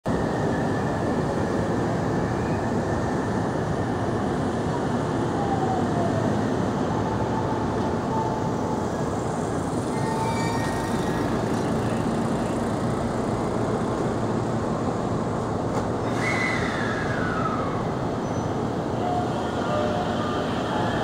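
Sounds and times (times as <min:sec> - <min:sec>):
electric train equipment running noise: 0:07.6 - 0:21.0.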